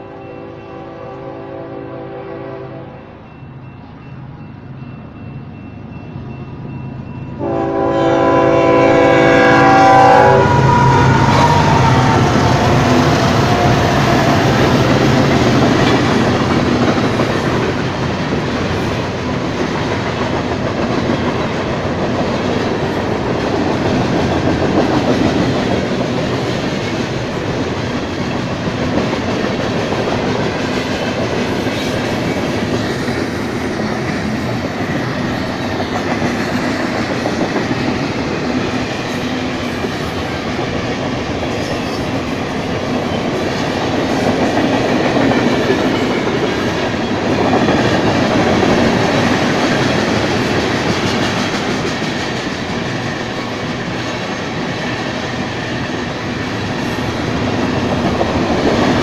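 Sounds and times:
locomotive horn: 0.0s - 3.1s, 7.4s - 13.8s
diesel locomotives passing: 0.0s - 59.0s
freight train wheel clatter: 10.7s - 59.0s.

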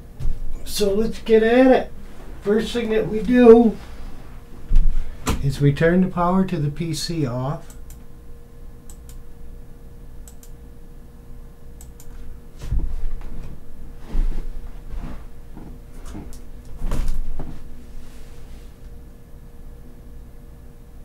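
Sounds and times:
faint steady hum: 0.0s - 21.0s
light clicks: 8.9s - 9.2s, 10.2s - 10.6s, 11.8s - 12.1s.

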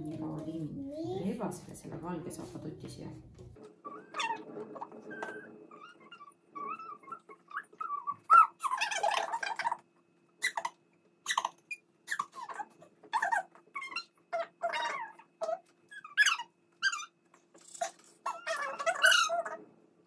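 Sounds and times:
squeaky little squeals: 3.8s - 9.8s, 10.4s - 19.6s.

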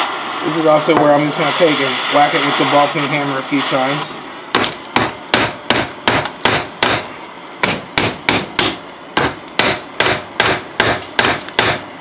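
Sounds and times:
hammer striking metal: 4.6s - 11.8s.

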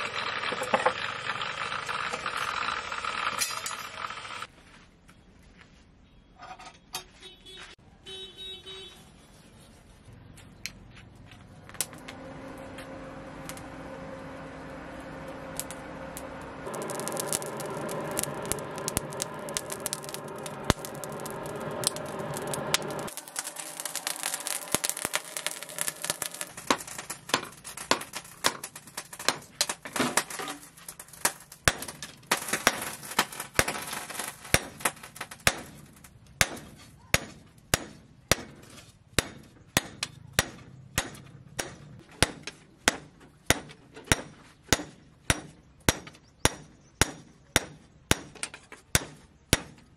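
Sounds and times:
forge air blower whirring: 11.8s - 27.0s.

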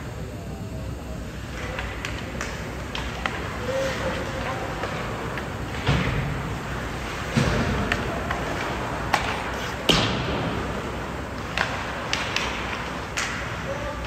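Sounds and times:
hockey sticks striking puck: 7.0s - 13.6s
puck hitting the boards: 7.2s - 10.6s.

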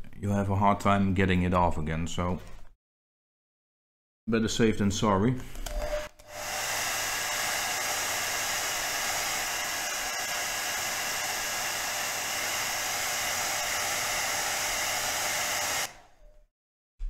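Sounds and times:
hot-air blower running: 5.8s - 16.1s.

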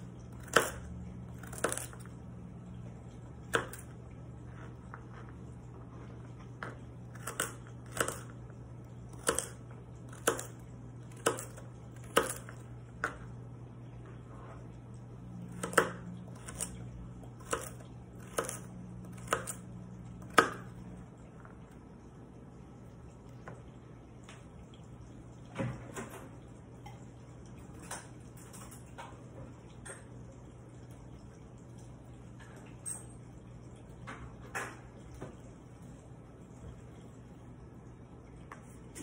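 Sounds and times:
knife chopping carrots on board: 15.5s - 16.7s.

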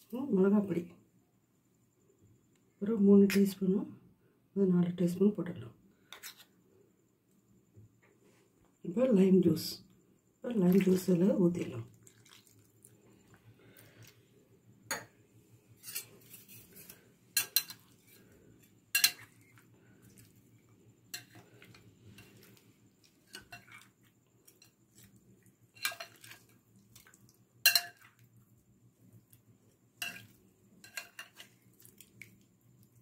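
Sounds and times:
spoon clinking against glass bowl: 19.0s - 19.4s, 27.6s - 28.2s.

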